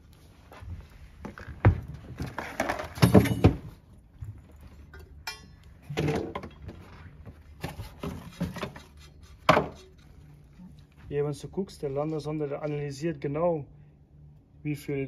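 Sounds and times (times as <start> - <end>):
metal parts knocking and clattering: 2.9 - 3.7.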